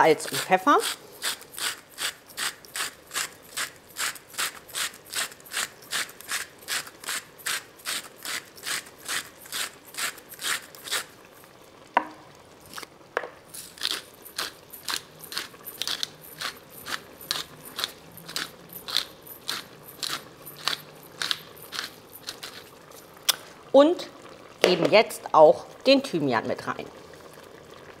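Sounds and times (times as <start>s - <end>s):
pepper mill grinding: 0.0s - 11.1s, 13.5s - 23.3s.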